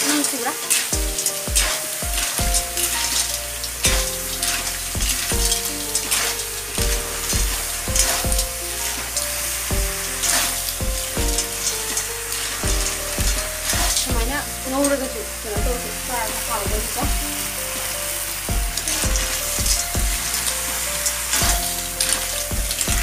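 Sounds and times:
metal spoon scraping a pan: 0.0s - 15.4s
snails sizzling in hot oil: 0.0s - 23.0s.

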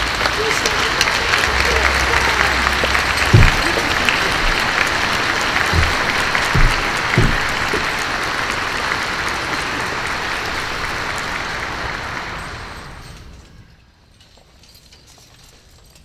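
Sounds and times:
audience applauding: 0.0s - 13.2s
dull thuds: 2.6s - 8.1s.

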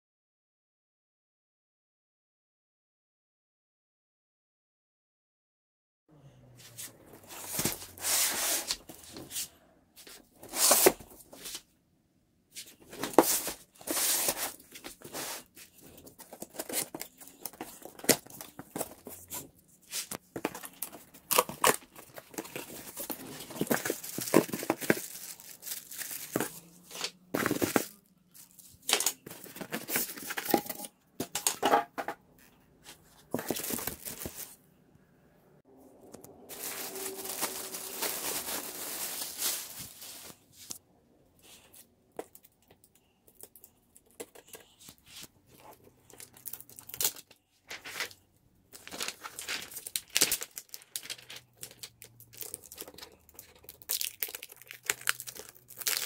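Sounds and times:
plastic packaging crinkling: 12.9s - 30.9s, 33.3s - 34.6s, 36.2s - 40.8s, 45.6s - 56.0s.

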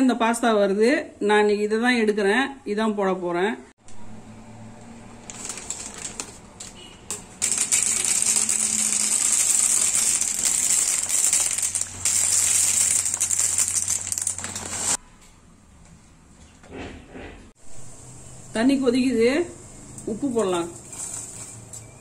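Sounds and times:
dry pasta rattling into metal bowl: 5.3s - 15.0s, 20.8s - 21.8s.

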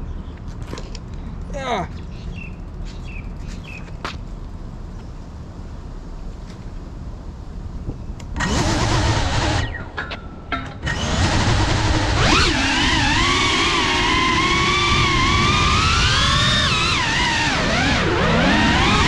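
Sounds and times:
drone motors whining: 8.4s - 10.2s, 10.8s - 19.0s.

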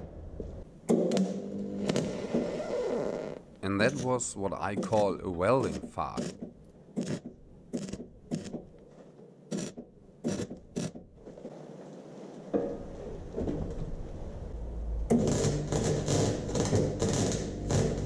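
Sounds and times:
welder hum: 15.1s - 18.0s
welding arc crackling: 15.1s - 18.0s.

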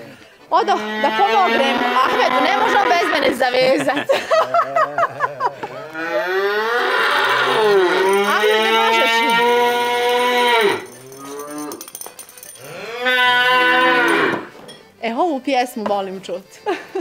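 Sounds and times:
bull bellowing: 0.0s - 3.4s, 4.8s - 14.6s.

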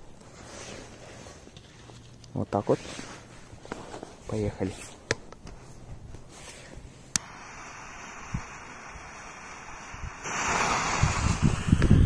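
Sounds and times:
fuse hissing as it burns: 6.3s - 12.0s
lighter flame hissing: 6.6s - 12.0s
lighter clicking: 7.1s - 10.9s.

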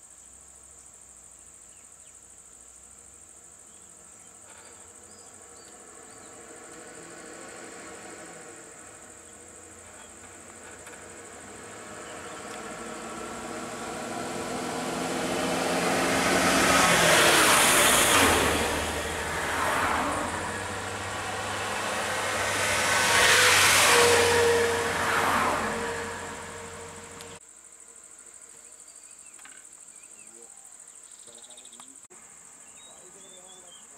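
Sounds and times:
vehicles passing close by: 4.4s - 27.4s.

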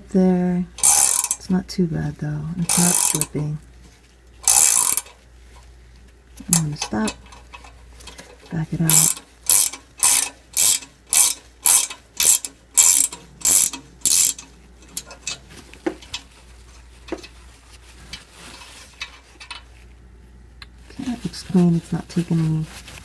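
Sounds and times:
hand ratchet clicking: 0.8s - 1.4s, 2.6s - 3.3s, 4.4s - 5.2s, 8.9s - 15.4s.

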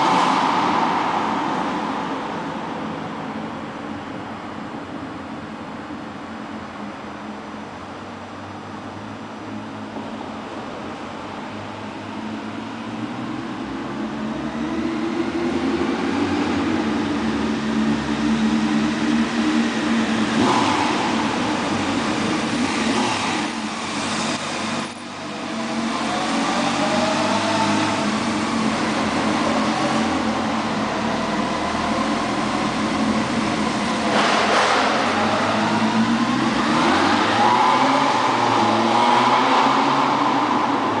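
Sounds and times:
motorcycle engine revving: 16.5s - 40.3s.

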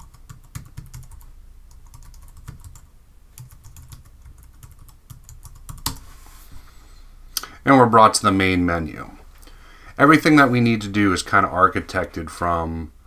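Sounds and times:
typing on keyboard: 0.0s - 2.8s, 3.4s - 6.0s.

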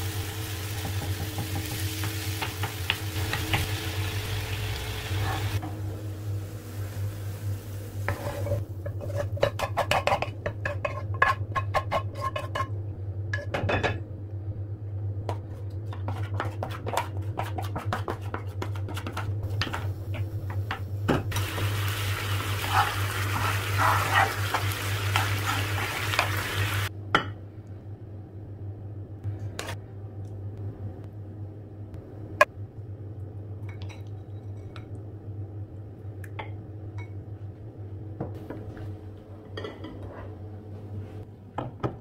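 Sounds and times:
meat sizzling in pan: 0.0s - 8.6s, 21.3s - 26.9s
steady low hum: 0.0s - 42.0s
spatula scraping frying pan: 8.0s - 12.7s, 22.4s - 26.7s.

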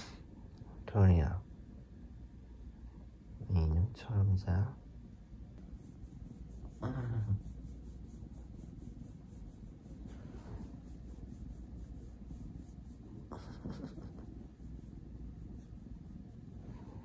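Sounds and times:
hand stroking cat fur: 5.6s - 17.0s.

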